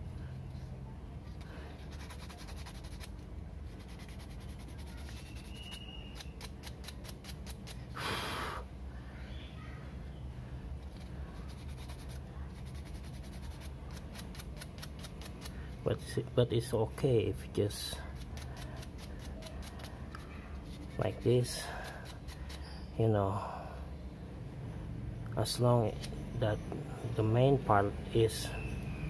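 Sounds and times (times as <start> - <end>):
steady low hum: 0.0 - 29.0
sanding stick scratching plastic: 1.8 - 7.8, 10.8 - 15.6, 17.8 - 22.9.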